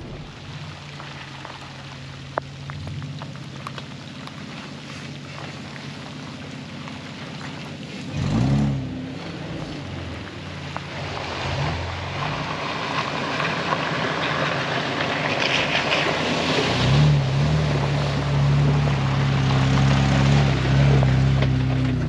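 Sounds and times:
vehicle splashing through puddle: 0.0s - 22.0s
vehicle engine droning past: 4.8s - 13.5s.

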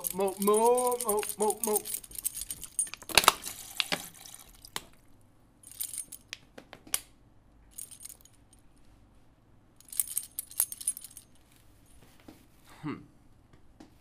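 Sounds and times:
metallic jingling and rattling: 0.0s - 4.8s, 5.6s - 6.3s, 7.7s - 8.6s, 9.8s - 12.0s.

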